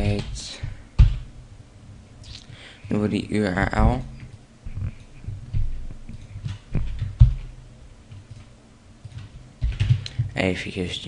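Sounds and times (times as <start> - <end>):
keyboard and mouse clicks: 4.2 - 7.4, 8.1 - 10.4.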